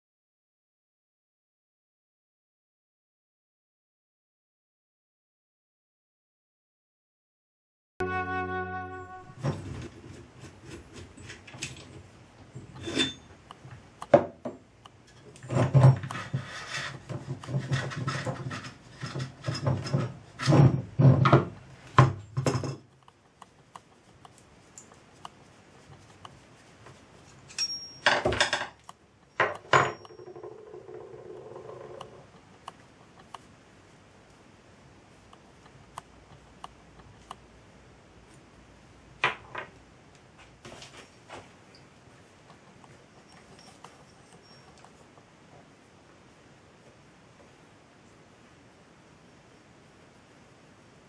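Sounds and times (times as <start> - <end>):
metal parts clinking on workbench: 27.5 - 28.8.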